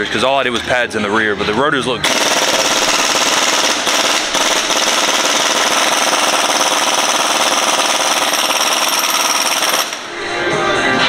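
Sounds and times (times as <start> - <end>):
impact wrench rattling: 2.0 - 10.2.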